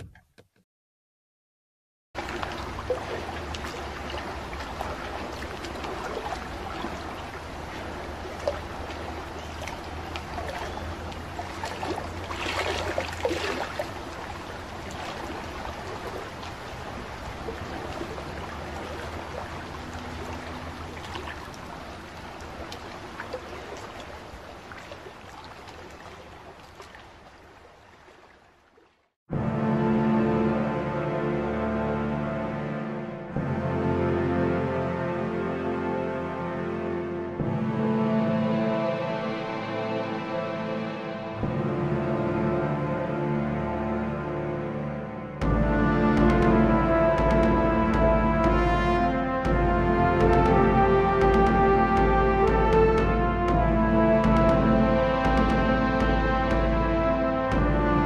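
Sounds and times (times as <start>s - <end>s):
rushing sloshing water: 2.2s - 58.0s
steady low rumble: 45.4s - 58.0s.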